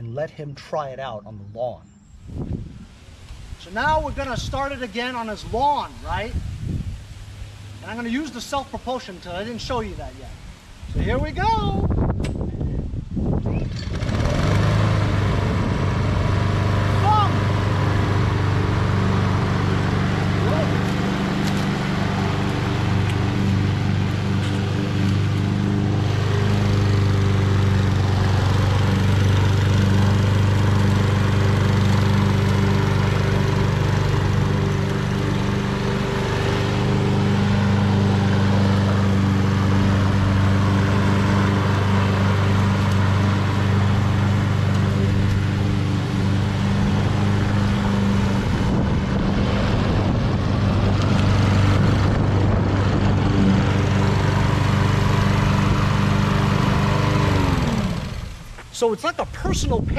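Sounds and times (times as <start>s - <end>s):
lawn mower engine running: 13.6s - 58.7s.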